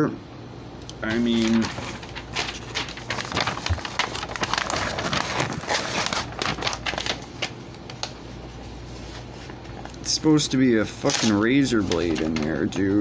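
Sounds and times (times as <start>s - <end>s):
paper tearing: 1.0s - 8.2s, 11.0s - 12.6s.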